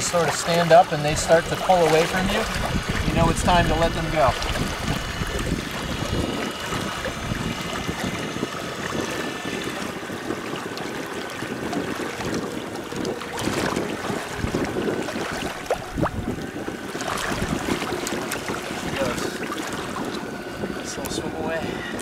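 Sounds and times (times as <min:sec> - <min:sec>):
electric outboard motor whine: 0:00.0 - 0:22.0
water splashing against kayak: 0:00.0 - 0:22.0.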